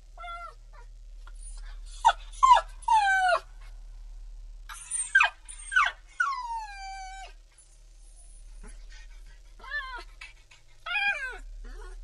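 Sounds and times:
puppy whining yelps: 0:00.2 - 0:03.5, 0:04.7 - 0:07.4, 0:09.6 - 0:12.0.

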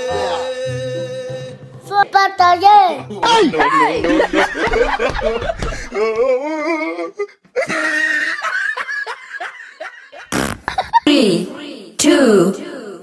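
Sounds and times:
person laughing: 0:03.3 - 0:11.1.

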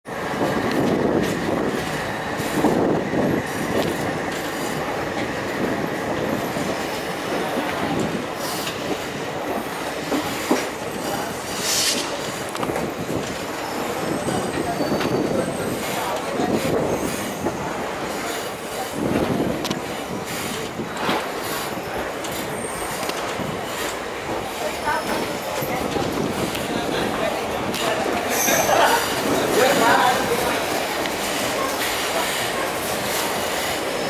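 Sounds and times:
train wheels rumbling on rails: 0:00.1 - 0:34.0.

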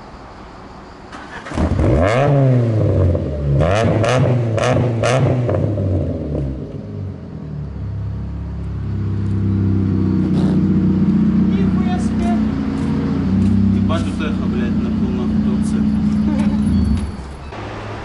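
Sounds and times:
car engine revving: 0:01.2 - 0:17.9
car engine idling: 0:05.7 - 0:17.8.

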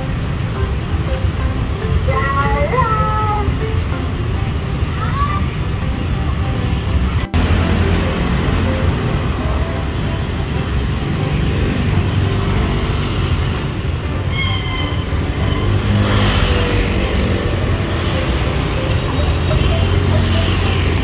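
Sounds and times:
street traffic noise: 0:00.0 - 0:21.0.

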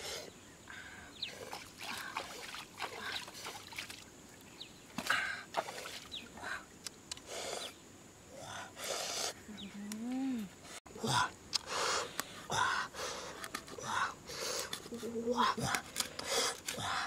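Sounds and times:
water splashing and trickling: 0:01.2 - 0:06.7.

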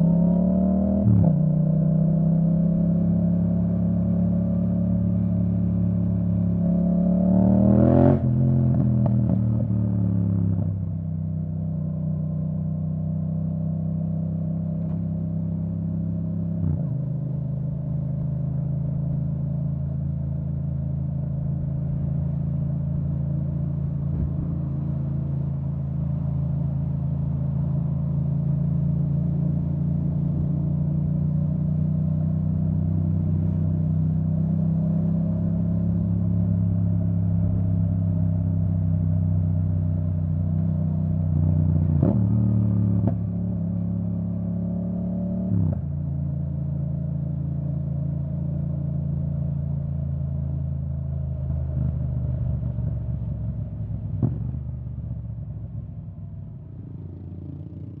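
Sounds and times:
motorcycle engine running: 0:17.2 - 0:45.2, 0:45.8 - 0:58.0.

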